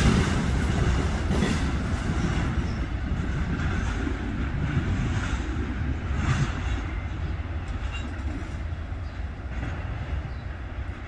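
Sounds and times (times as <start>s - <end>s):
freight train rumbling on rails: 0.0s - 11.0s.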